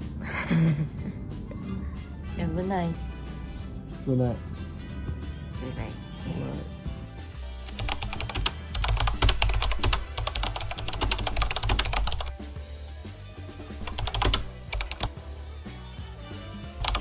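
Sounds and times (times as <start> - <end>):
background music: 0.0 - 17.0
keyboard typing clicks: 7.7 - 12.3, 13.8 - 15.1.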